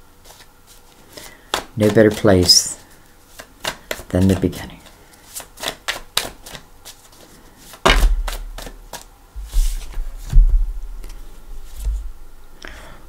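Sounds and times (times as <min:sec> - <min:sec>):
dull thumps through table: 0:07.8 - 0:08.4
short rustle: 0:08.9 - 0:10.4.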